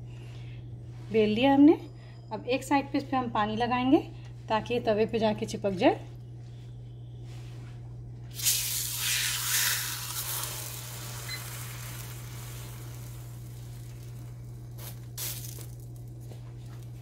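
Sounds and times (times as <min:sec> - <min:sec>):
steady low hum: 0:00.0 - 0:17.0
dough sizzling on hot griddle: 0:08.3 - 0:16.8.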